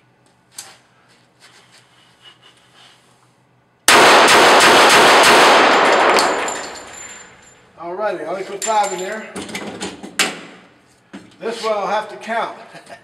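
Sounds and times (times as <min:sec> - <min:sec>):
rapid pistol shots: 0:03.9 - 0:06.5.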